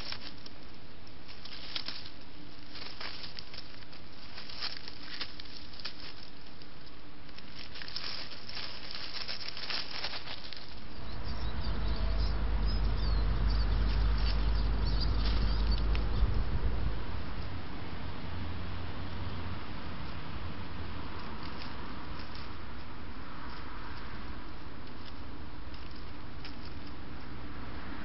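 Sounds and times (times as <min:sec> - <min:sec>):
animal rustling in dry leaves: 0:00.0 - 0:12.0, 0:12.6 - 0:17.4, 0:19.4 - 0:27.5
faint bird chirps: 0:10.8 - 0:16.4
wind rumble on microphone: 0:11.0 - 0:18.6.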